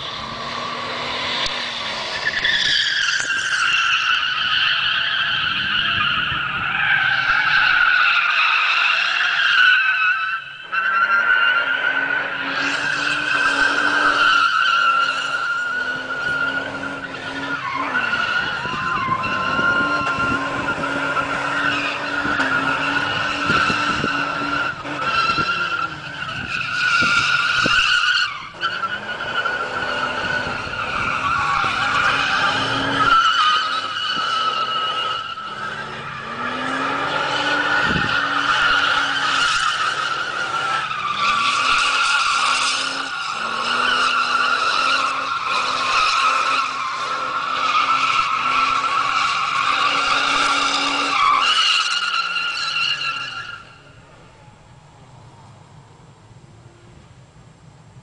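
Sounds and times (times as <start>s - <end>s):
tyres spinning and squealing: 0.0s - 55.2s
car engine revving high: 28.4s - 51.5s.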